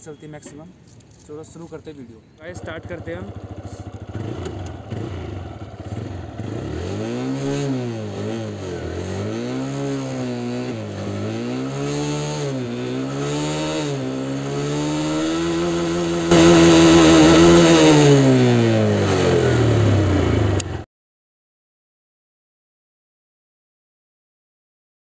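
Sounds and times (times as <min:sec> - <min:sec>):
motorcycle engine revving: 0:02.5 - 0:20.8.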